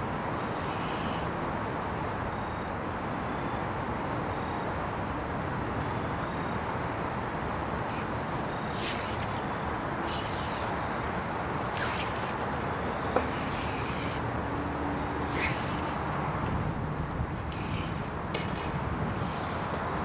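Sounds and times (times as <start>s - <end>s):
steady rushing noise: 7.4s - 20.0s.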